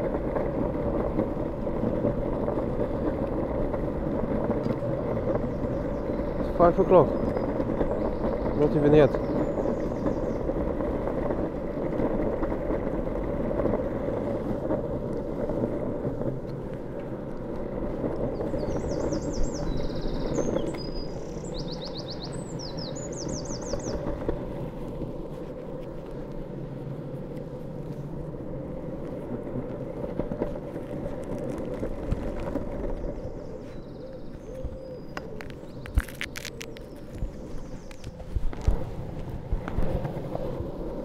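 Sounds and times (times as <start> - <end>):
longboard wheels rolling on tarmac: 0.0 - 41.0
small bird chirping: 18.3 - 24.1, 33.0 - 38.3.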